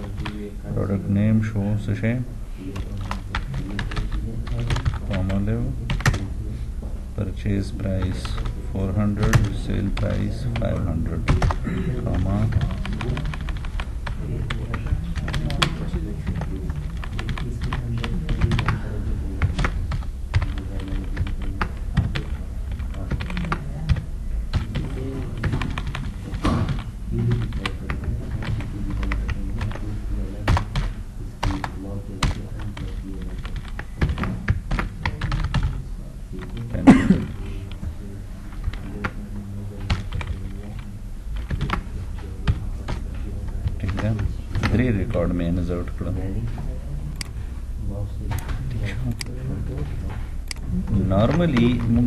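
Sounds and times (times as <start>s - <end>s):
computer keyboard typing: 2.7s - 6.3s, 7.9s - 35.8s, 38.5s - 44.9s, 50.4s - 52.0s.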